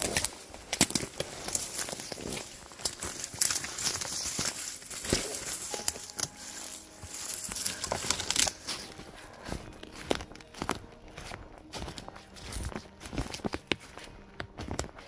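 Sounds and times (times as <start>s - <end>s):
footsteps through dry leaves: 0.0s - 15.0s
twigs snapping: 0.0s - 15.0s.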